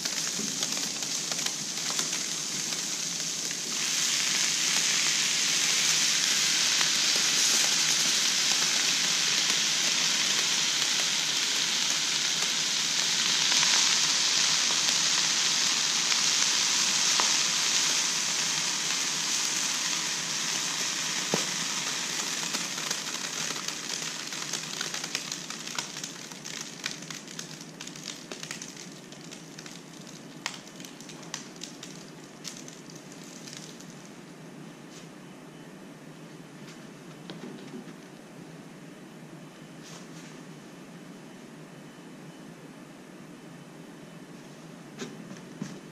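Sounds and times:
crackles and ticks: 0.0 - 3.7, 22.2 - 34.1
liquid nitrogen sizzling hiss: 0.0 - 34.1.

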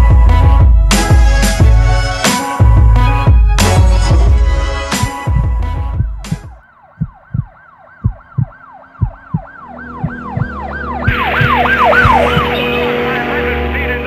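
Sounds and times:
low thumps: 2.6 - 12.8
siren yelping: 5.7 - 13.2
engine rumble: 8.2 - 14.0.

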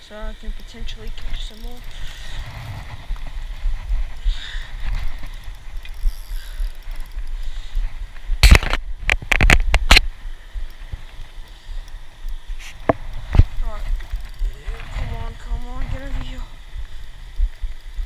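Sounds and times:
camera handling rumble and rustling: 1.1 - 10.1, 10.7 - 16.3.

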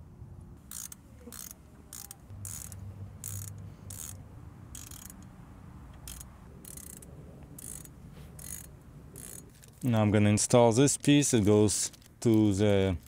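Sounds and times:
ratchet wrench clicking: 0.7 - 9.8.

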